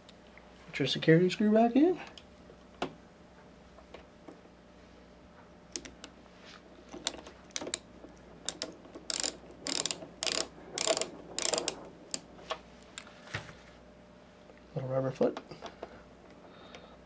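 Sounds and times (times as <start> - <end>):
screwdriver rasping turns: 8.5 - 12.2.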